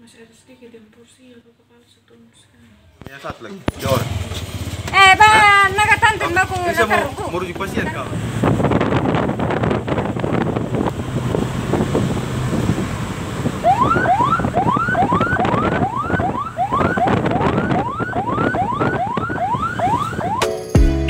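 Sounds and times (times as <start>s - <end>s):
car road and wind noise: 3.7s - 20.5s
ambulance siren yelping: 13.6s - 20.6s.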